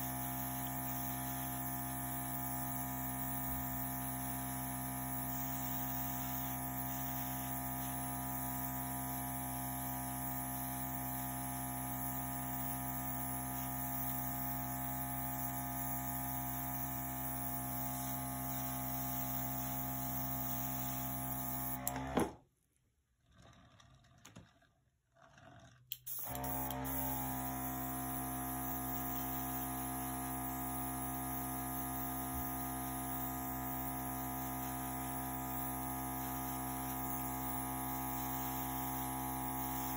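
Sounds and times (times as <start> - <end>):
air compressor running: 0.0 - 22.4, 26.0 - 39.9.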